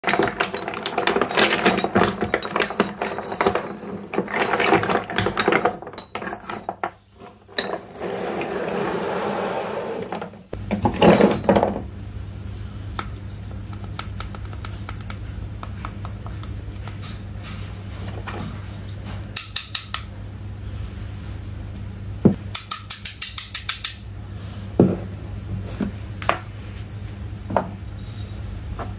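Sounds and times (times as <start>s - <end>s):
steady low hum: 10.5s - 23.1s.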